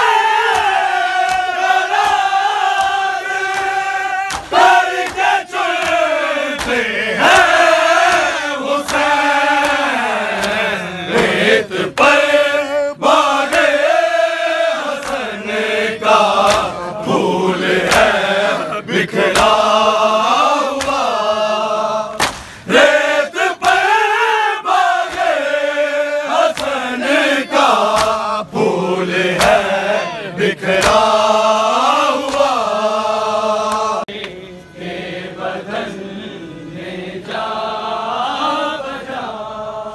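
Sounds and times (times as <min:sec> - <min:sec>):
men chanting in unison: 0:00.0 - 0:39.9
hands striking chests: 0:22.2 - 0:22.6, 0:27.9 - 0:28.2.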